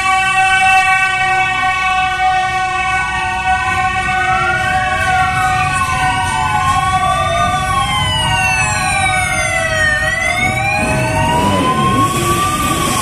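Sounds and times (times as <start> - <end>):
sirens wailing: 0.0 - 13.0
motorcycle engines running: 4.6 - 13.0.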